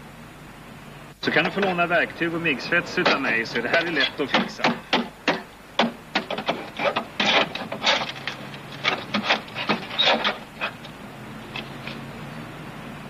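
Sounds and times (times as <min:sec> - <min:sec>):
hands scraping rusted metal: 0:02.9 - 0:12.0.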